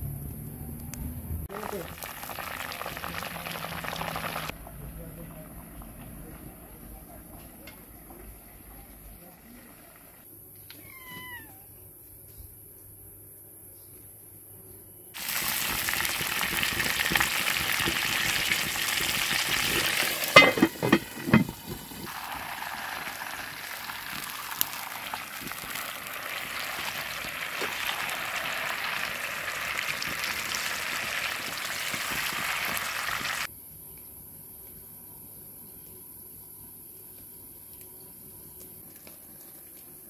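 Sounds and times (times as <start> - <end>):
chicken sizzling in hot oil: 1.5 - 4.6, 15.2 - 33.5
metal clanking and scraping on pan: 20.0 - 22.0.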